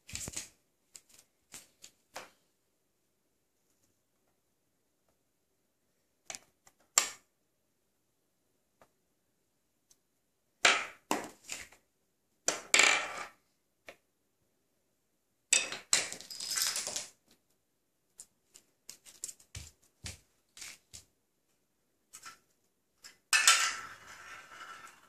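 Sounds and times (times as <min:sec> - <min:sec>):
wooden pieces clattering: 0:15.6 - 0:17.2.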